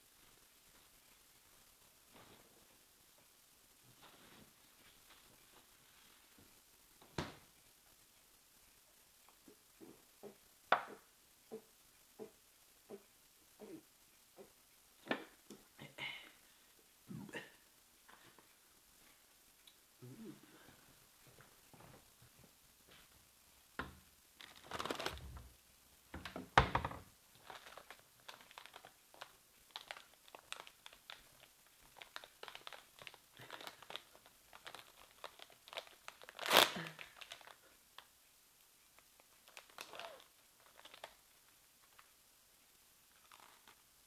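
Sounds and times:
wrapper ripping: 0:24.4 - 0:25.4, 0:27.4 - 0:38.1, 0:39.2 - 0:41.2, 0:43.2 - 0:43.8
plastic wrapper crinkling: 0:24.4 - 0:25.5, 0:27.3 - 0:38.1, 0:39.0 - 0:42.1, 0:43.1 - 0:43.8.

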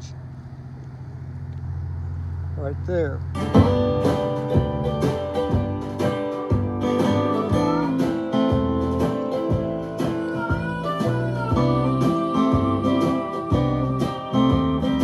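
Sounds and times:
acoustic guitar music with beat: 0:03.3 - 0:15.0.

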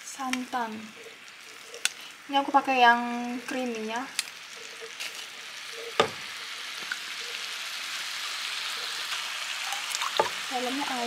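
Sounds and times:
meat sizzling in a frying pan: 0:00.0 - 0:11.0.

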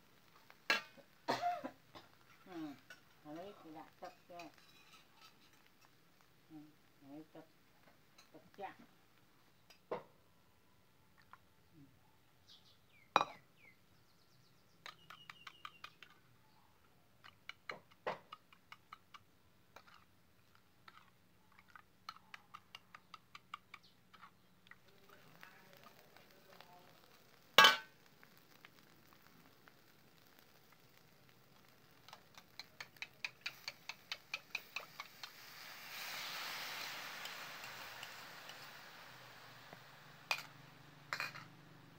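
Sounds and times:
liquid being stirred: 0:19.8 - 0:41.7
rustling: 0:24.1 - 0:41.6.

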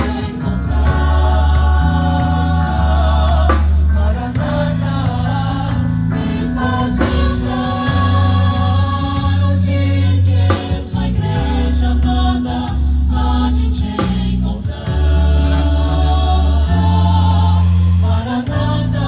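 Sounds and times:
keyboard: 0:00.0 - 0:19.0
vocal group singing: 0:00.0 - 0:19.0.

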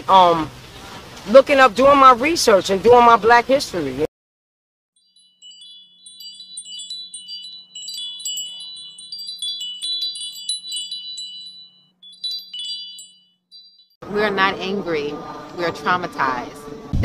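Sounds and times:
chimes tinkling: 0:05.0 - 0:14.0.

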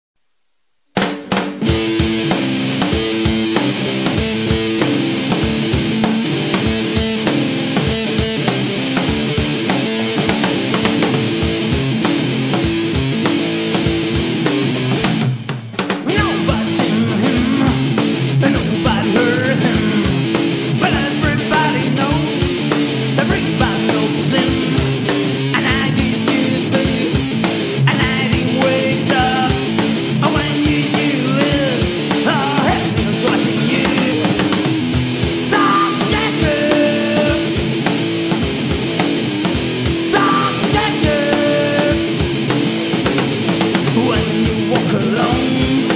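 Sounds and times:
drum beat: 0:01.0 - 0:45.9
electric guitar: 0:01.2 - 0:45.9.

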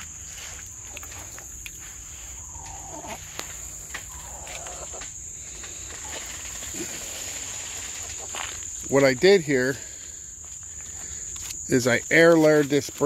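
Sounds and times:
crickets chirping: 0:00.0 - 0:13.0
faint falling animal calls: 0:02.1 - 0:08.6.

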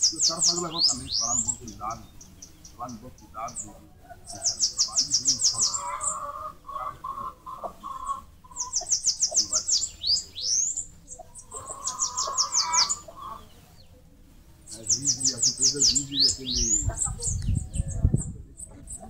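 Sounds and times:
sweeping whistled bird notes: 0:00.0 - 0:02.8, 0:08.5 - 0:13.9, 0:14.7 - 0:19.0
low bird chatter: 0:00.0 - 0:19.0.

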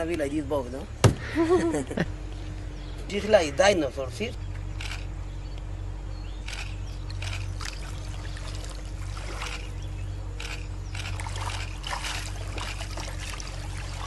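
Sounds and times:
low steady rumble: 0:00.0 - 0:14.0
river water trickling and splashing: 0:06.6 - 0:14.0.

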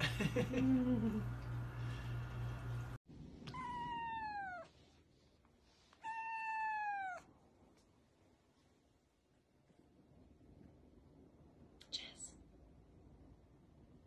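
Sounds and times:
cat meowing: 0:03.5 - 0:04.8, 0:06.0 - 0:07.3.

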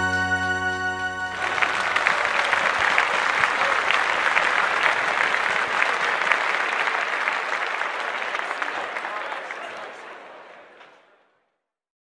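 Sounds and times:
held music chord: 0:00.0 - 0:02.3
audience applause: 0:00.6 - 0:11.2.

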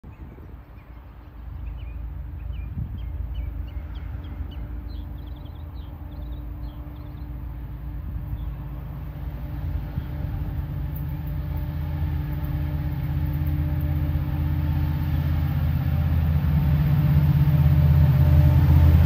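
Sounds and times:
small birds chirping: 0:00.1 - 0:07.4.

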